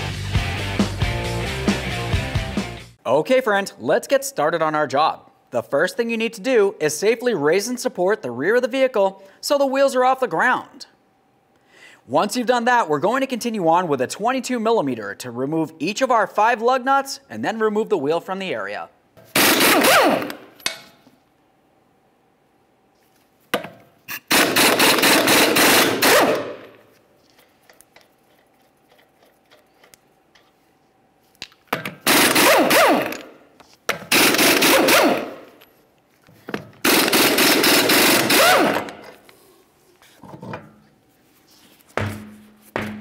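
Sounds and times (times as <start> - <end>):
air impact wrench rattling: 19.2 - 20.6, 24.1 - 26.8, 31.8 - 33.3, 33.9 - 35.6, 36.7 - 39.2.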